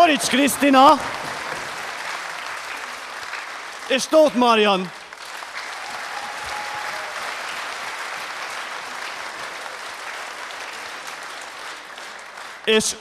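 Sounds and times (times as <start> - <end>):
audience applauding: 0.0 - 13.0.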